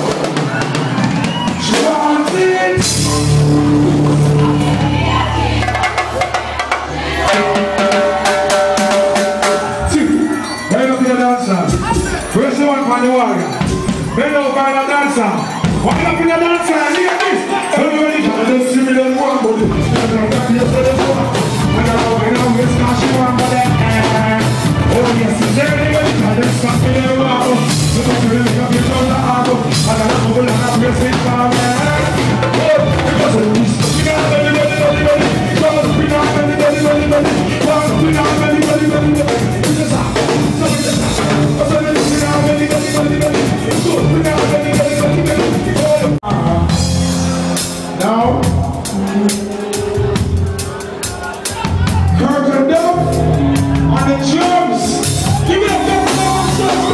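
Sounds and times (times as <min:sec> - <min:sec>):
drum kit: 0:00.0 - 0:12.7, 0:13.4 - 0:18.4, 0:19.4 - 0:56.9
person singing: 0:19.3 - 0:56.9.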